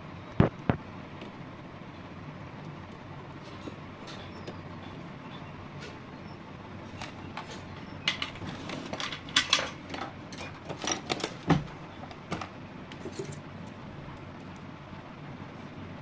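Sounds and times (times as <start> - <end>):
steady low hum: 0.0 - 16.0
tools clicking and clattering: 7.0 - 13.4.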